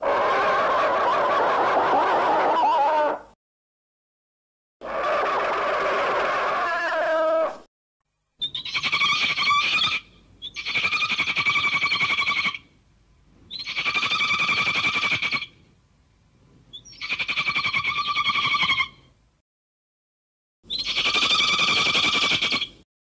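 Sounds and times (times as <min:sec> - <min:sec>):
monster trilling cry: 0:00.0 - 0:03.3, 0:04.8 - 0:07.6.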